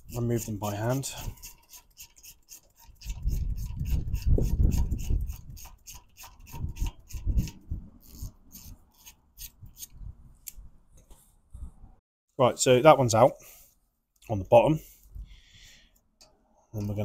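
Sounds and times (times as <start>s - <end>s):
ratchet clicking: 1.2s - 9.9s.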